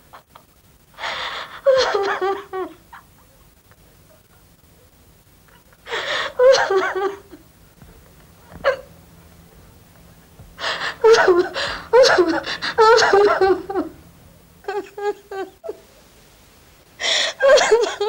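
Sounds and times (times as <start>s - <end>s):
woman sobbing: 1.0s - 3.1s, 5.9s - 7.5s, 10.6s - 14.0s, 14.6s - 15.8s, 17.0s - 18.0s.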